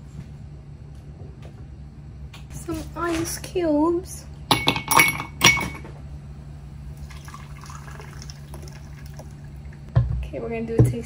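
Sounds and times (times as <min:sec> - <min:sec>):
juice trickling into glass: 0:07.0 - 0:09.8.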